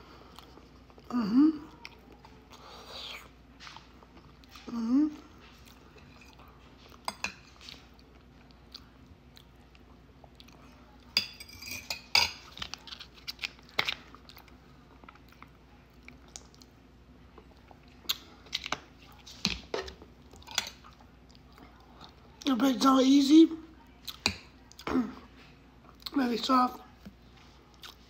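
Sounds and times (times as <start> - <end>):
person chewing: 17.4 - 22.2, 27.7 - 28.0.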